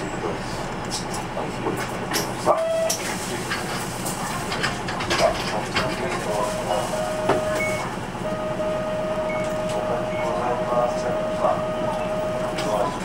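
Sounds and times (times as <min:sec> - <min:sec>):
rattles and clicks from bus body: 0:00.0 - 0:08.2, 0:09.3 - 0:13.0
bus diesel engine idling: 0:00.0 - 0:13.0
short beep: 0:07.0 - 0:12.4.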